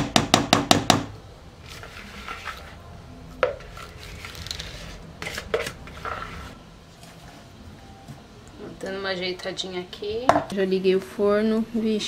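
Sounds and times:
spatula scraping batter from bowl: 0:01.6 - 0:02.8.

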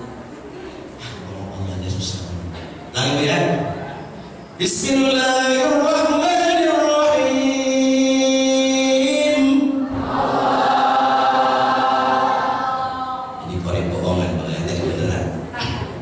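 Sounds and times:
chanted singing through microphone: 0:04.6 - 0:13.8.

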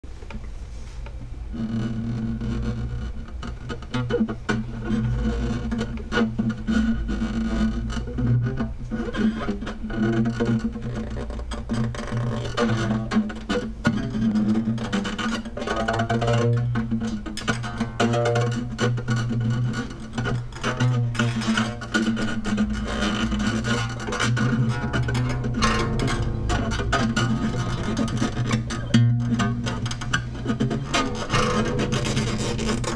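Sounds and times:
acoustic guitar plucked notes: 0:12.6 - 0:32.9
low steady drone: 0:23.0 - 0:32.6.

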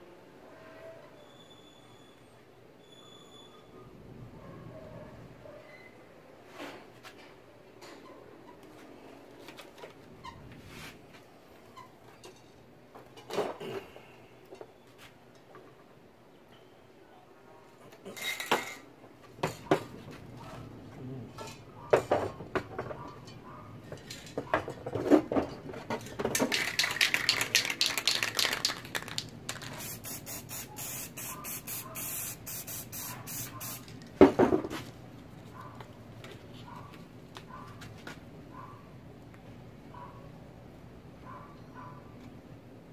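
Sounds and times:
cans and tools clattering: 0:18.0 - 0:19.9, 0:23.9 - 0:29.8
spray paint can hissing: 0:26.6 - 0:34.0.

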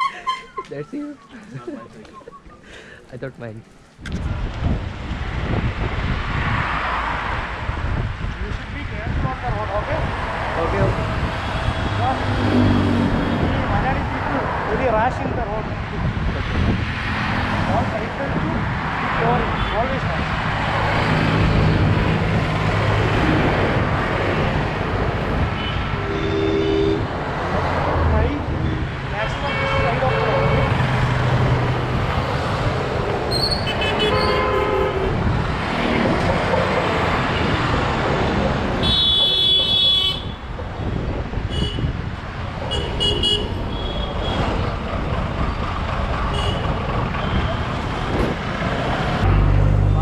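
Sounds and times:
vehicle horn: 0:00.0 - 0:00.7, 0:25.5 - 0:27.1, 0:28.6 - 0:30.9, 0:33.4 - 0:35.2, 0:38.8 - 0:40.5, 0:41.5 - 0:41.9, 0:42.7 - 0:44.4, 0:46.3 - 0:46.6
road traffic rumble: 0:00.0 - 0:50.0
vehicle engines passing: 0:00.0 - 0:50.0.

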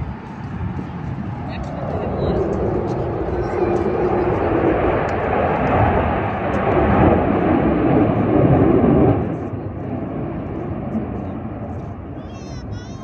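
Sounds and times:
airplane flying over: 0:00.0 - 0:13.0.

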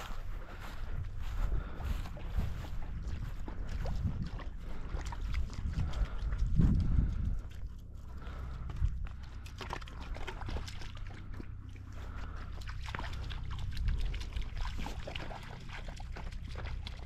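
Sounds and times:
footsteps through dry grass: 0:00.0 - 0:10.4
low rumble: 0:00.0 - 0:17.0.

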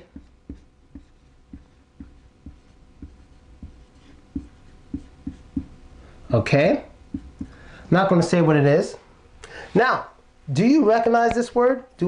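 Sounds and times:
soft marker taps: 0:00.0 - 0:05.8, 0:07.1 - 0:07.6
marker writing on whiteboard: 0:00.0 - 0:05.9, 0:07.1 - 0:07.6.

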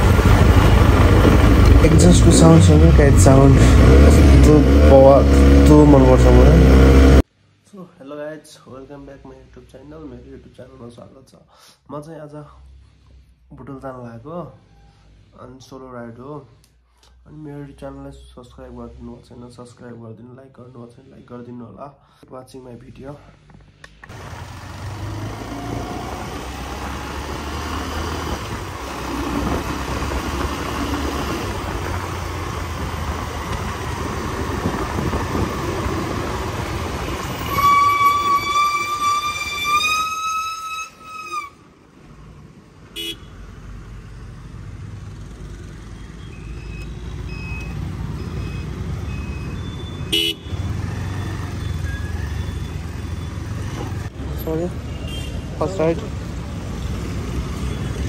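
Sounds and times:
motorcycle engine and road rumble: 0:00.0 - 0:07.3, 0:23.4 - 0:58.0
vehicle horn blaring: 0:37.0 - 0:41.6, 0:43.0 - 0:43.3, 0:50.1 - 0:50.6, 0:54.9 - 0:55.4
short horn beeps: 0:37.2 - 0:41.6.

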